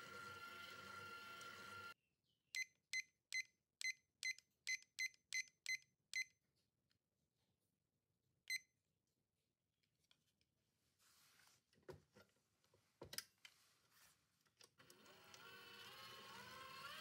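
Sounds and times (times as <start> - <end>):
stand mixer motor: 0.0 - 2.0, 15.0 - 17.0
kitchen timer beeps: 2.6 - 6.4.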